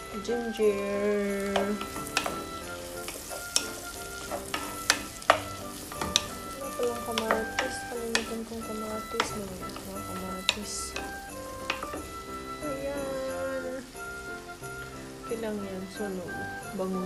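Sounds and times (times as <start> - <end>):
food sizzling in oil: 0.0 - 17.0
wooden spoon knocking pot: 1.2 - 13.2.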